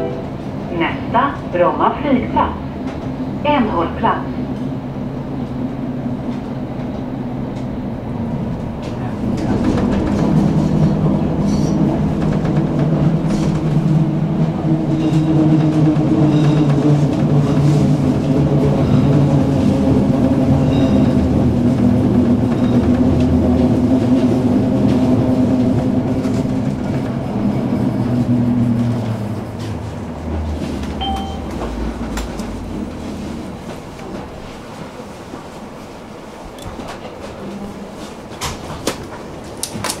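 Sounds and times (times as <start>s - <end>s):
tram wheels rumbling on rail: 0.0s - 40.0s.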